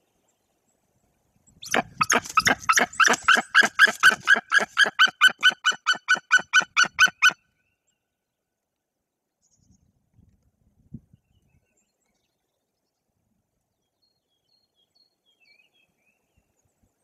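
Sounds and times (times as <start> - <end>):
eagle yelping call: 1.6 - 7.4.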